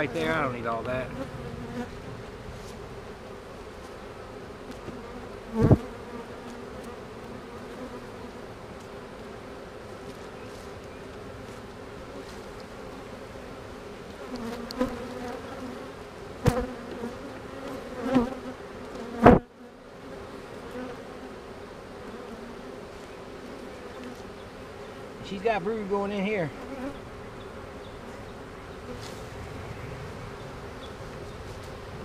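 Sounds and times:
bees buzzing: 0:00.0 - 0:32.0.

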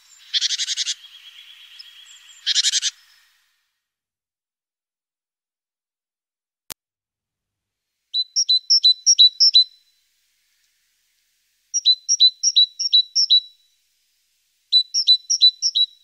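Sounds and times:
small songbird singing: 0:00.0 - 0:03.6, 0:08.1 - 0:13.9, 0:14.6 - 0:16.0.

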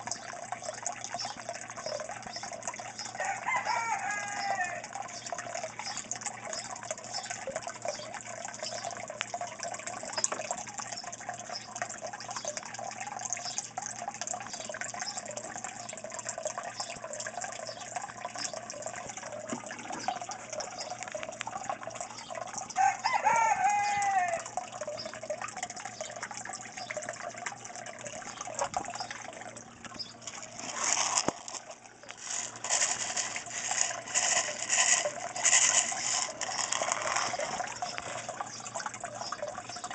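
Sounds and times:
water splashing and trickling: 0:00.0 - 0:39.9.

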